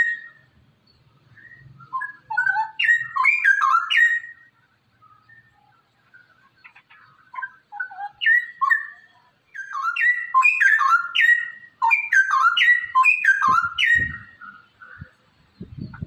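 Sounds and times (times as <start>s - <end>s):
bulbul singing: 0.0s - 16.0s.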